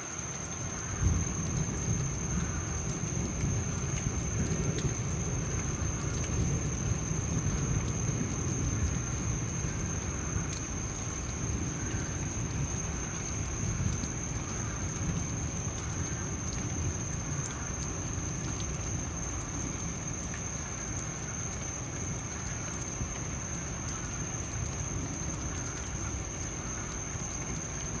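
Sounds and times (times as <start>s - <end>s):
rain falling: 0.0s - 28.0s
distant thunder rumbling: 0.9s - 20.0s.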